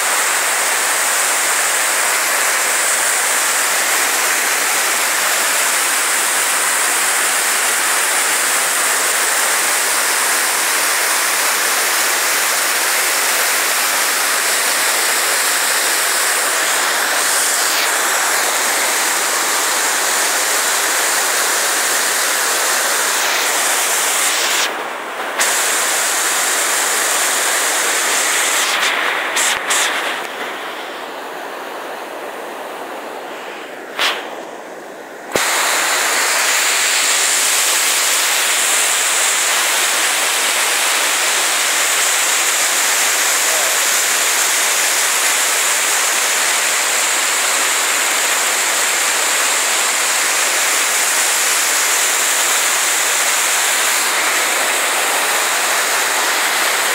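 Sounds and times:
waterfall rushing over rock: 0.0s - 56.9s.

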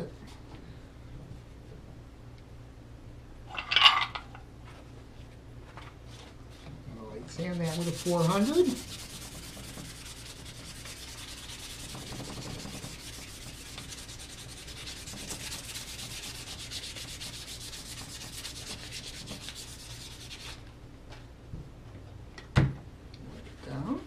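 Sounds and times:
sandpaper rasping on wood: 7.4s - 20.6s.

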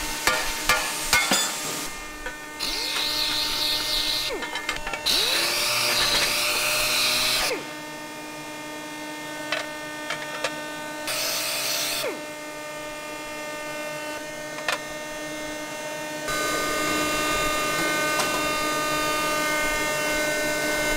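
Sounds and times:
sander whining on metal: 0.0s - 20.9s
steady machine hum: 12.2s - 20.9s.

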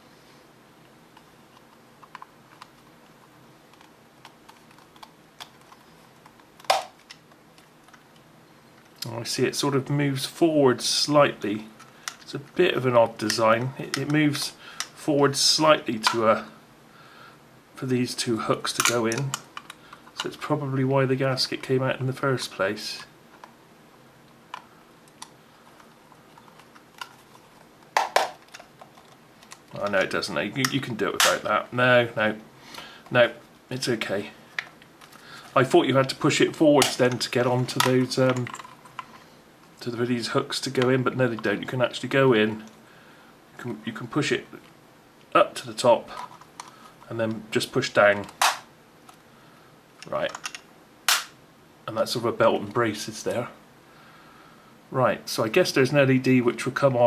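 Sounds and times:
sharp plastic clicks: 50.3s - 51.4s.

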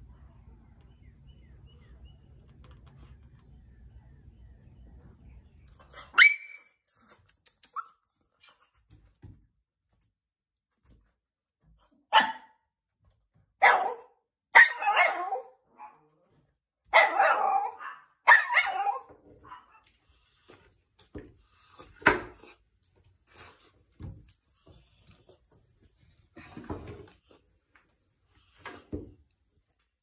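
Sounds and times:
dog barking: 12.1s - 12.6s, 13.6s - 16.1s, 16.9s - 19.8s.

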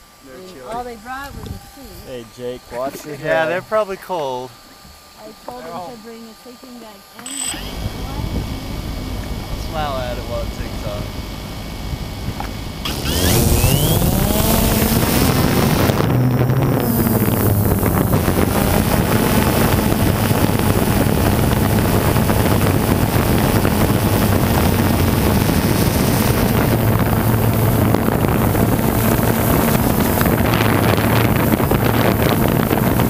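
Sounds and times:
drone propellers humming: 0.0s - 33.0s
wind rushing over microphone: 7.5s - 33.0s.

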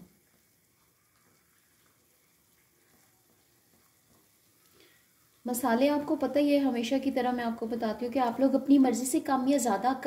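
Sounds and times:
spatula stirring: 0.0s - 6.2s
faint meat simmering in pan: 0.0s - 10.0s.

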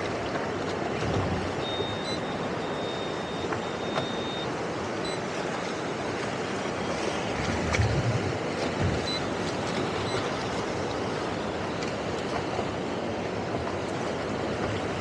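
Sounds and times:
wind and water noise: 0.0s - 15.0s
wind buffeting microphone: 7.3s - 9.3s.

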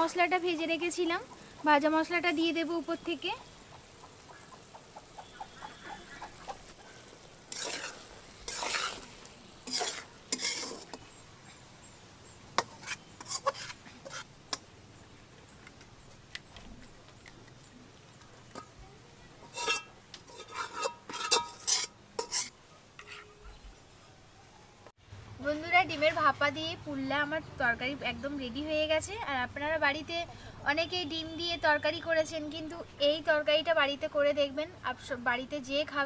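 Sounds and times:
clinks and scrapes on plate: 7.5s - 11.0s, 12.6s - 14.3s, 19.4s - 23.4s
metal spatula scraping pot: 7.5s - 11.2s, 12.6s - 14.3s, 19.4s - 23.4s.

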